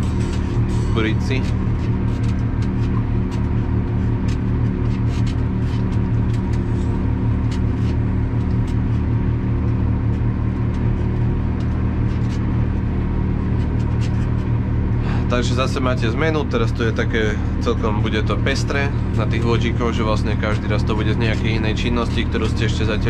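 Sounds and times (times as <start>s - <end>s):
tractor engine running: 0.0s - 23.0s.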